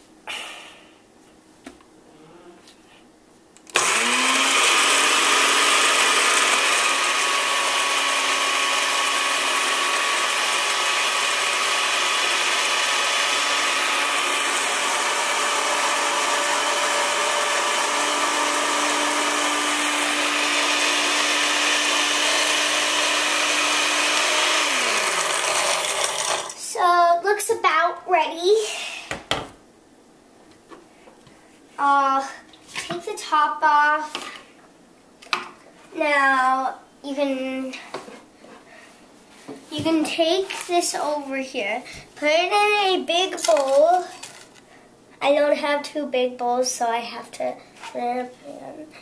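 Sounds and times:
blender grinding: 3.7 - 26.7.

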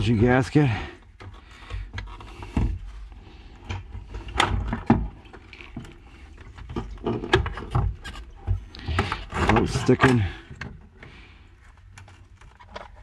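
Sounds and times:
plastic part clattering against tank: 3.6 - 11.2.

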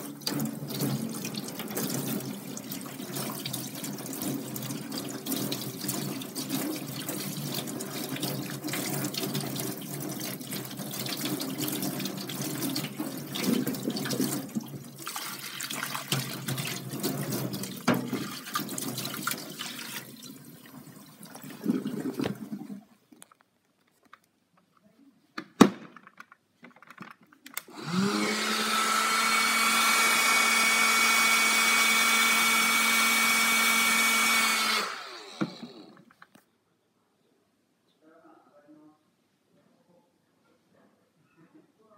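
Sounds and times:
tap water running into sink: 0.0 - 22.9
handheld vacuum motor whining: 27.6 - 36.2.

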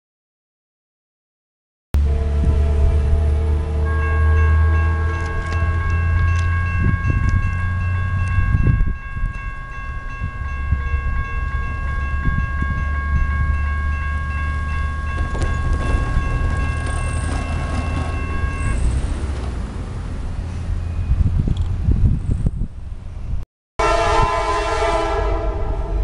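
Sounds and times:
railroad crossing bell ringing: 2.0 - 19.4.

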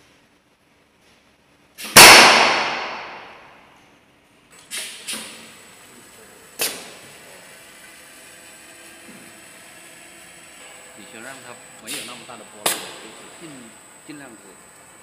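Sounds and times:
loud metallic impact ringing: 2.0 - 3.6.

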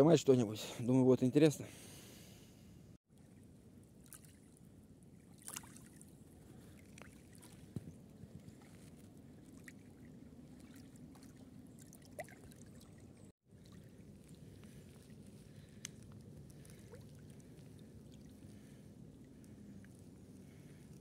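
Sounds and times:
small waves lapping on gravel: 5.3 - 7.8.

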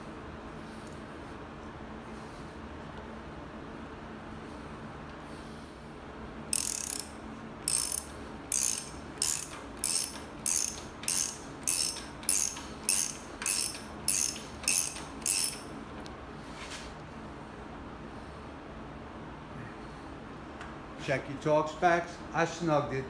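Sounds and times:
ratchet wrench clicking: 6.5 - 15.7.

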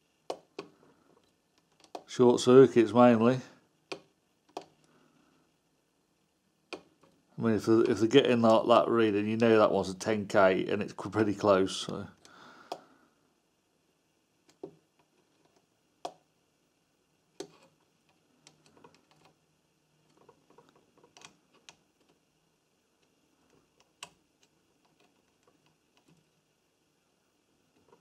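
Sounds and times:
test probes clicking on circuit board: 17.4 - 17.8.

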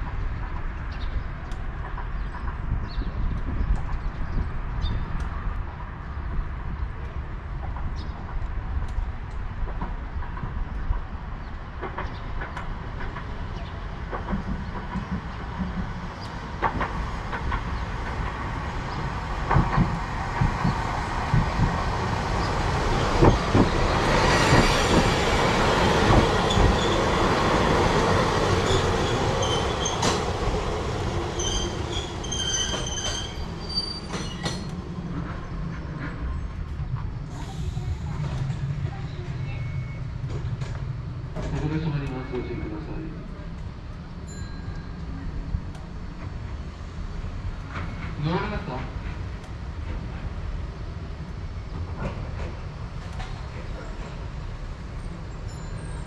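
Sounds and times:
train wheels clacking over rail joints: 11.8 - 36.2
high-pitched wheel squeals: 31.4 - 34.7.

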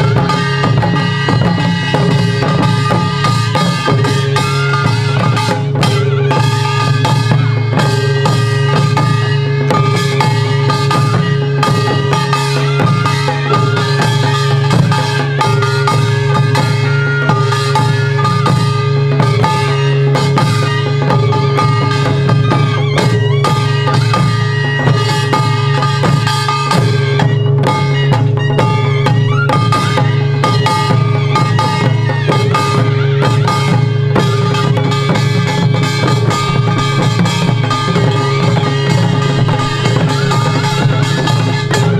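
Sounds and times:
held melodic tones: 0.0 - 41.9
barrel drums struck with sticks: 30.5 - 41.9.

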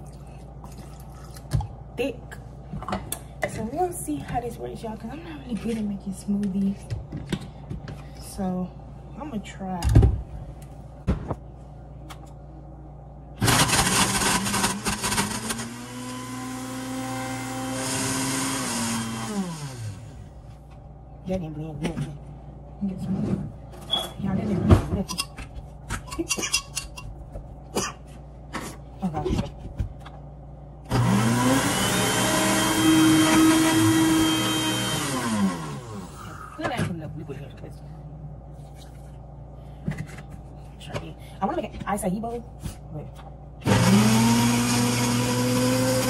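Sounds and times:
blender chopping frozen fruit: 13.4 - 20.1, 30.9 - 36.1, 43.6 - 46.0.

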